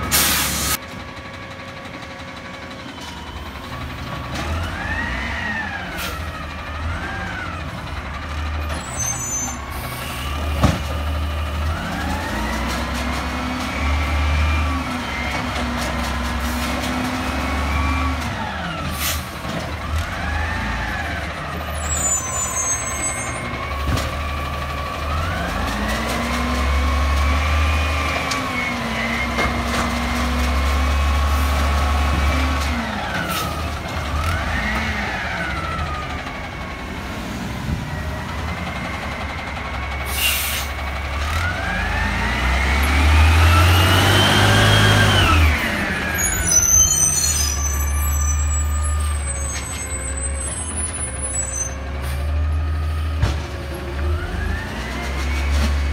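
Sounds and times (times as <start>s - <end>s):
garbage truck engine revving: 9.5s - 49.3s.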